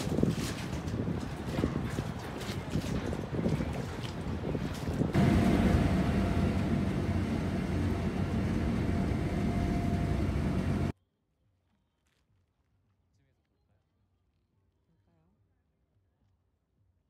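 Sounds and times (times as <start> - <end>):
wind: 0.0 - 10.9
water noise: 0.3 - 10.9
ferry engine hum: 3.8 - 10.9.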